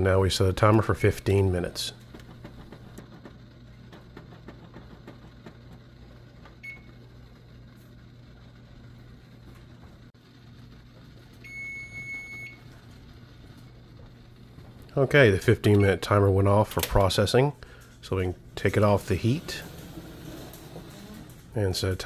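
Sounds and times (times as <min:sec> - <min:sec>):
low steady hum: 0:00.0 - 0:22.0
kitchen timer beeping: 0:06.6 - 0:07.0, 0:11.4 - 0:12.6.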